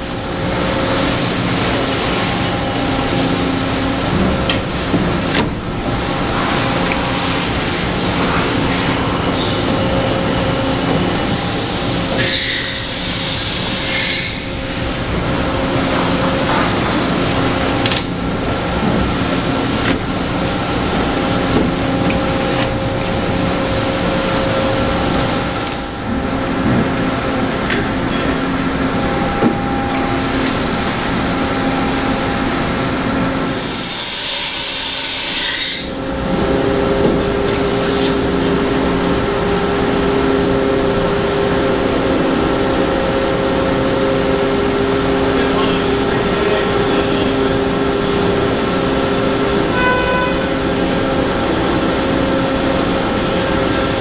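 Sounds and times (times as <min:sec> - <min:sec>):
boring mill humming: 0:00.0 - 0:54.0
hiss: 0:11.5 - 0:14.4, 0:33.7 - 0:35.9.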